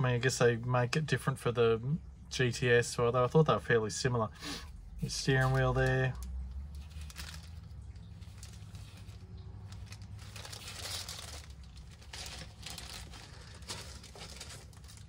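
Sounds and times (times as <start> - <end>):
plastic bag crinkling: 5.0 - 15.0.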